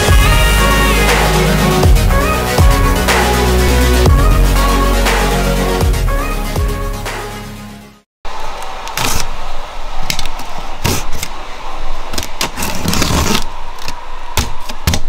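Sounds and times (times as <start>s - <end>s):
electronic music: 0.0s - 8.0s
blade slitting packing tape: 12.2s - 14.0s
tape and cardboard tearing: 12.4s - 13.9s.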